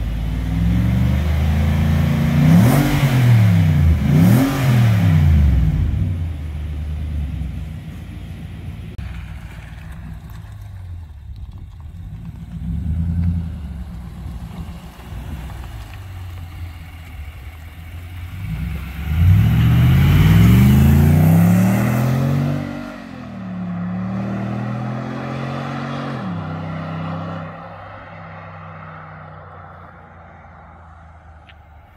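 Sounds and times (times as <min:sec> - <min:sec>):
car engine revving and accelerating: 0:00.0 - 0:07.6, 0:16.8 - 0:31.4.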